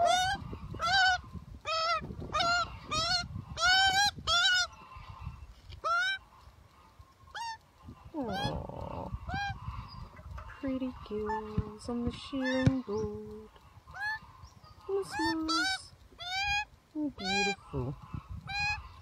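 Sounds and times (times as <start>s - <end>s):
magpie squawking: 0.0s - 4.8s, 5.8s - 6.2s, 9.2s - 19.0s.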